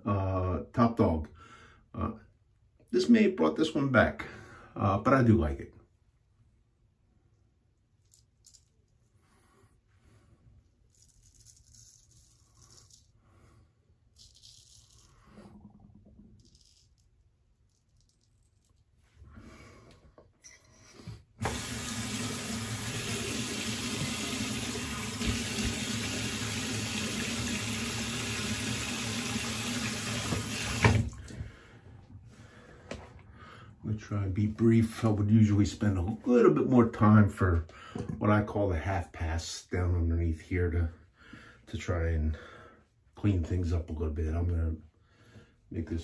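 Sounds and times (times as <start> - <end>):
tap water running into sink: 21.4 - 31.4.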